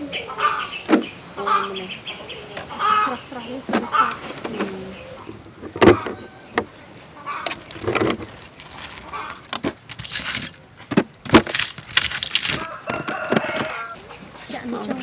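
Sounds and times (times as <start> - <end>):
sharp knocks and clicks: 5.6 - 6.7
crab shells clattering on glass and metal: 7.5 - 13.8.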